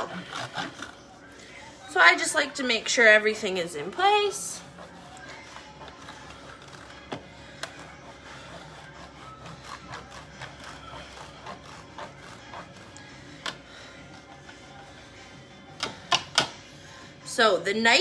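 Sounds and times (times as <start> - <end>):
cheese grating on metal grater: 0.0 - 1.1, 3.3 - 13.3.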